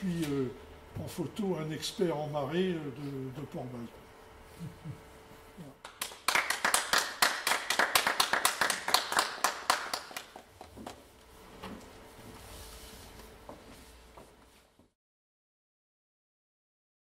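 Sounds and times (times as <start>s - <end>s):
small audience applauding: 5.8s - 10.5s.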